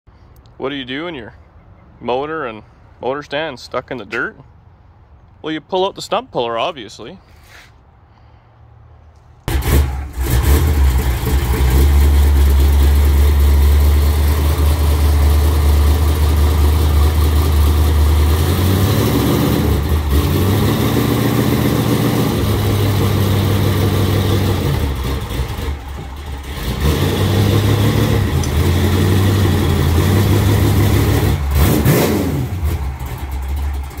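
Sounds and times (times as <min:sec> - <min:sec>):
car engine revving: 0:09.5 - 0:34.0.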